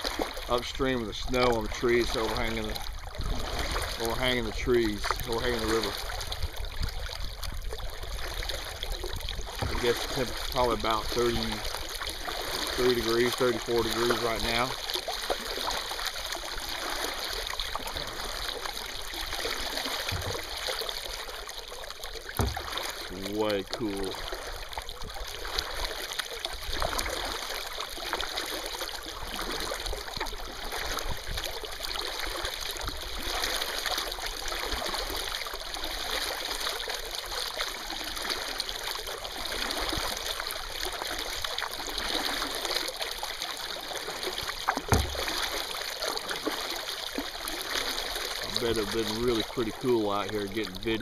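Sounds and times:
paddle knocking kayak hull: 0:00.0 - 0:32.6, 0:39.9 - 0:51.0
paddle splashing water: 0:00.0 - 0:51.0
water dripping off paddle blades: 0:00.0 - 0:51.0.

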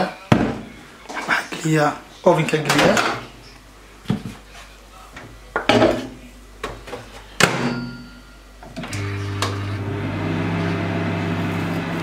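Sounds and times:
microwave humming: 0:08.8 - 0:12.0.

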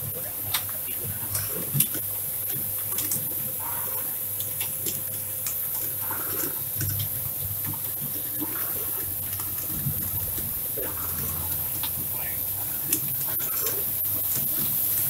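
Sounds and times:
motor hum: 0:00.0 - 0:15.0.

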